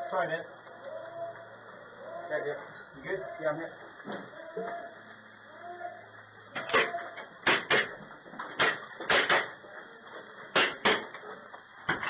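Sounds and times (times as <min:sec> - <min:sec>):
airsoft gun shots: 0:06.6 - 0:07.9, 0:08.6 - 0:09.6.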